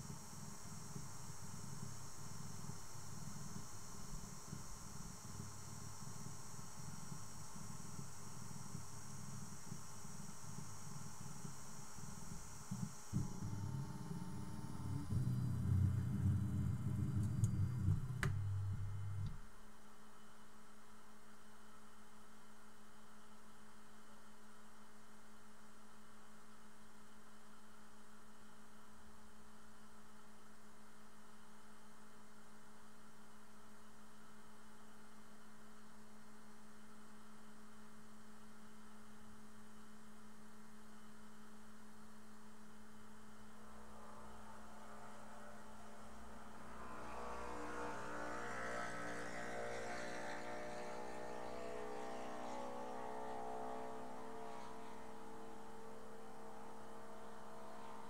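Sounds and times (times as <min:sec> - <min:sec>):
printer steady low hum: 0:00.0 - 0:19.5
stepper motors rumbling: 0:12.0 - 0:19.4.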